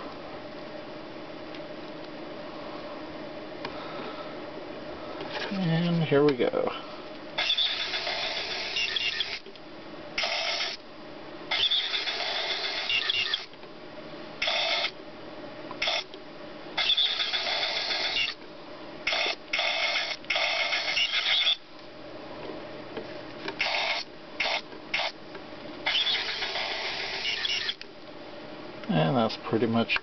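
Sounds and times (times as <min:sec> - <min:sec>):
tiny gear motors whirring: 0:07.4 - 0:09.5, 0:10.2 - 0:10.8, 0:11.5 - 0:13.5, 0:14.4 - 0:14.9, 0:15.8 - 0:16.1, 0:16.8 - 0:18.4, 0:19.1 - 0:21.6, 0:23.6 - 0:25.2, 0:25.9 - 0:27.8.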